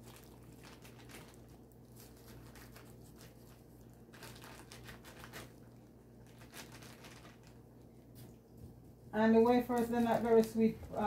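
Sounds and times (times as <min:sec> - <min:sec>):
plastic bag crinkling: 0:00.0 - 0:07.9, 0:09.2 - 0:11.0
faint low hum: 0:00.0 - 0:11.0.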